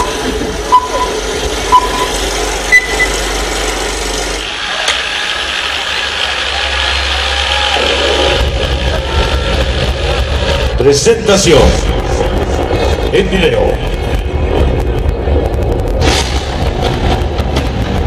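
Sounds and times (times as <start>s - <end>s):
countdown beeps: 0.0s - 3.2s
deep rumble with hiss: 0.0s - 18.0s.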